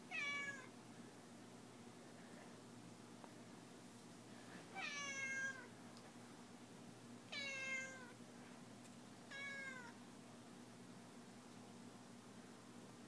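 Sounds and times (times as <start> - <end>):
cat meowing: 0.1 - 0.7, 4.8 - 5.7, 7.3 - 8.2, 9.3 - 10.0.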